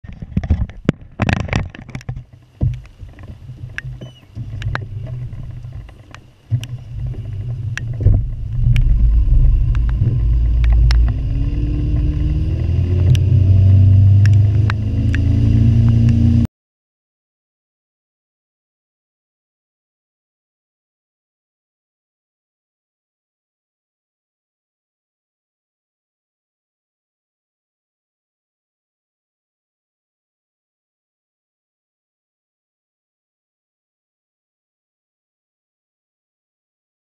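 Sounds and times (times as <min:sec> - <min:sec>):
wind rush on microphone: 0:00.0 - 0:16.5
outboard motor at speed: 0:00.4 - 0:16.5.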